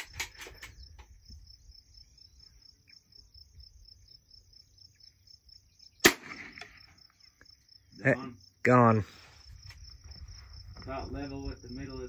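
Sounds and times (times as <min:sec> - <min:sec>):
insects trilling: 0:00.0 - 0:12.0
rifle shot: 0:06.0 - 0:06.9.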